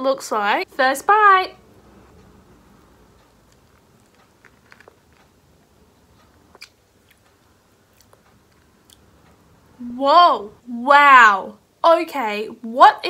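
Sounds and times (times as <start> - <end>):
faint chewing: 2.2 - 9.4
mouth clicks and crunches: 3.3 - 9.1.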